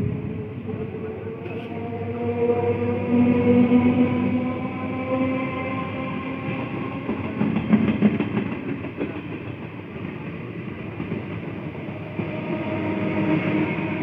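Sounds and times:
train coaches rumbling past: 0:00.0 - 0:14.0
train wheels clicking over joints: 0:06.3 - 0:12.5.

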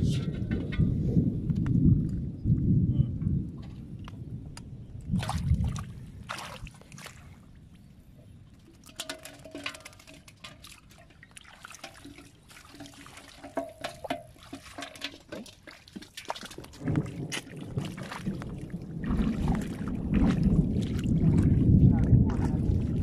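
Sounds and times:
water dripping: 0:04.0 - 0:23.0
water splashing and trickling: 0:04.9 - 0:23.0
fish in a metal bowl: 0:08.2 - 0:17.5.

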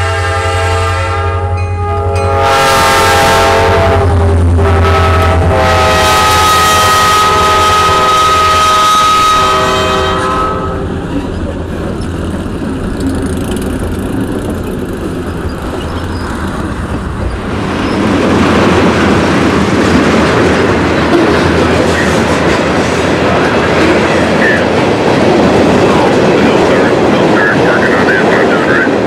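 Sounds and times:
locomotive horn chord: 0:00.0 - 0:11.0
locomotives rumbling past: 0:01.2 - 0:29.0
wheels clattering over rail joints: 0:10.9 - 0:27.3.

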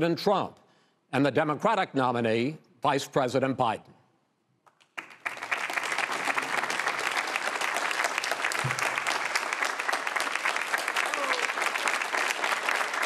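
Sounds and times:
audience applauding: 0:04.8 - 0:13.0.

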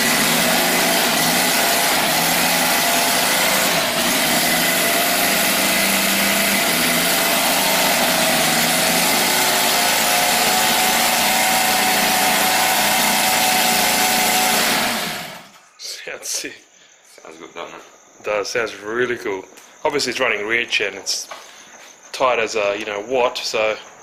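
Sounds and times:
model aircraft engine running: 0:00.0 - 0:15.5.

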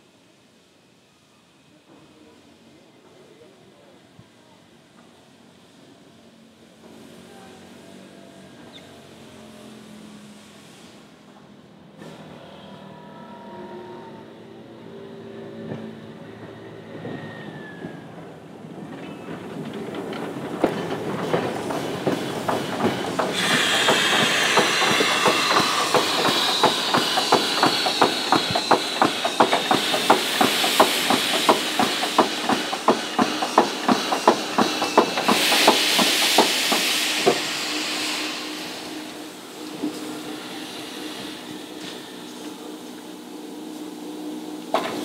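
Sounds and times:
steam locomotive wheels clicking: 0:18.8 - 0:43.1
steam hissing: 0:19.4 - 0:45.0.

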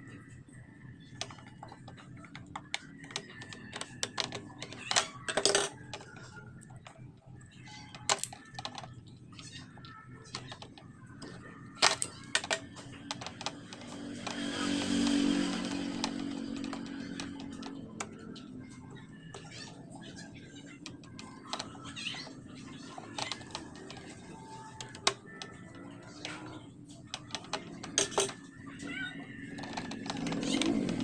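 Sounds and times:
tools clicking and tapping on socket: 0:08.0 - 0:08.8
steady motor drone: 0:10.7 - 0:21.6, 0:22.2 - 0:31.0.

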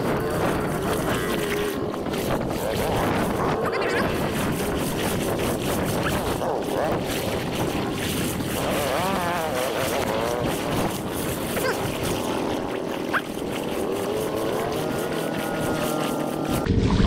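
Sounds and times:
wind on microphone: 0:00.0 - 0:17.0
atv engine revving: 0:08.6 - 0:10.9, 0:13.4 - 0:16.8.

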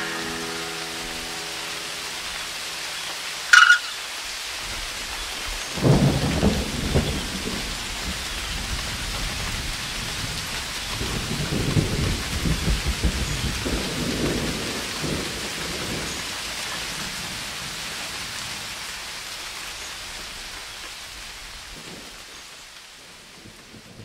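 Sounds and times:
ringing guitar chord: 0:00.0 - 0:04.0
short sharp sound: 0:00.0 - 0:04.0
steady rain: 0:00.0 - 0:24.0
rolling thunder: 0:04.7 - 0:16.4.

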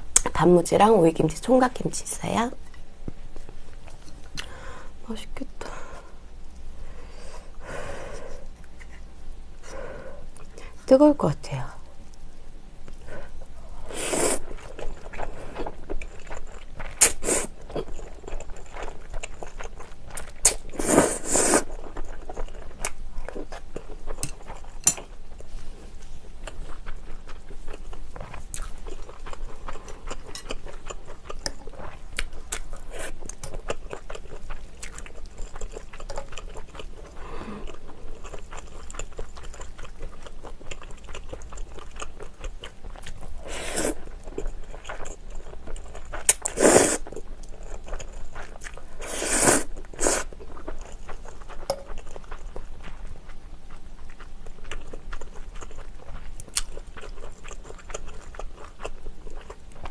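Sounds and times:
slurping spaghetti: 0:13.9 - 0:15.8, 0:20.4 - 0:21.8, 0:43.4 - 0:44.1, 0:46.2 - 0:47.1, 0:49.0 - 0:50.4
wet chewing: 0:14.4 - 0:25.5, 0:26.3 - 0:59.9.

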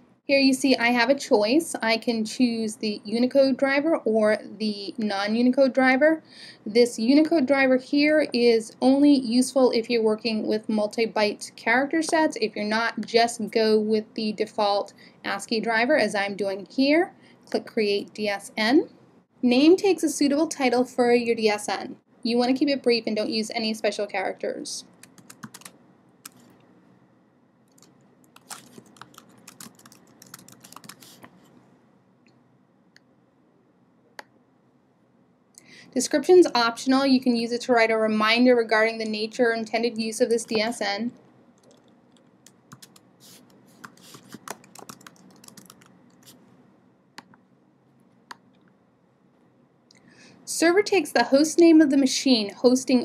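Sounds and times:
keyboard typing: 0:24.9 - 0:26.6, 0:27.7 - 0:31.5, 0:41.6 - 0:46.4.

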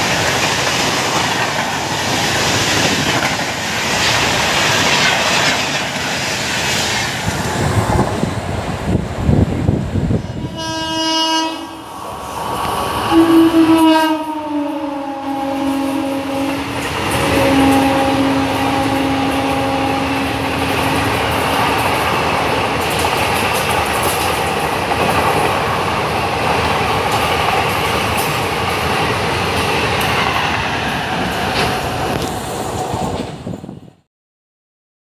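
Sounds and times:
train wheels roaring on rail: 0:00.0 - 0:34.1
train horn: 0:10.2 - 0:11.9, 0:13.0 - 0:21.2.

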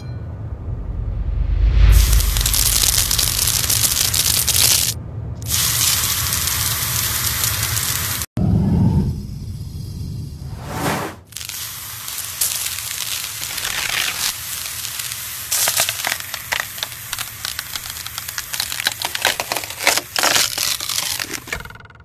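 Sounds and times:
knife cutting crunchy fruit: 0:15.6 - 0:21.7.

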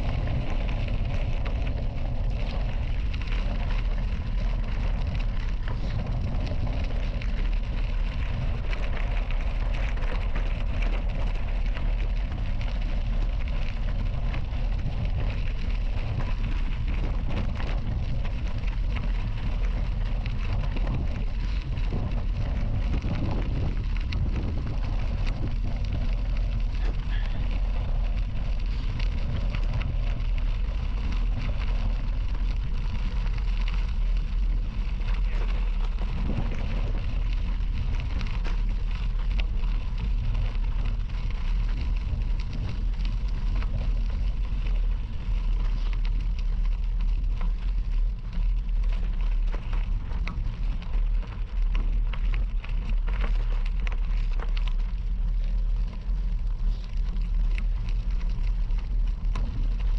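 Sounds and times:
bicycle tyres crunching gravel: 0:00.0 - 0:59.9
wind rumbling on microphone: 0:00.0 - 0:59.9.

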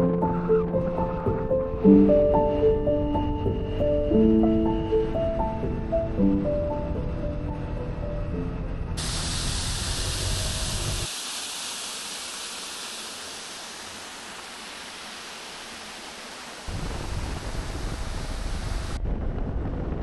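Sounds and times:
background music: 0:00.0 - 0:09.1
steady hiss: 0:09.0 - 0:19.0
low rumble: 0:16.7 - 0:20.0.

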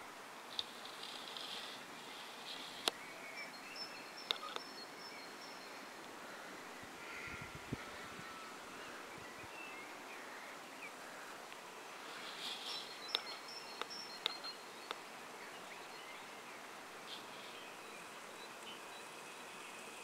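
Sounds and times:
birds chirping: 0:00.0 - 0:20.0
steady soft hiss: 0:00.0 - 0:20.0.

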